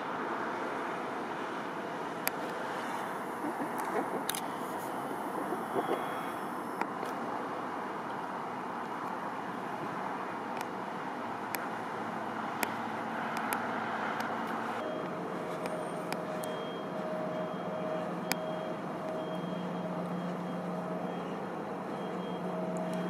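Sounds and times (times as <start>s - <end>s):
highway traffic noise: 0.0s - 23.0s
steady hum: 2.9s - 6.8s
sharp clicks: 3.4s - 6.9s.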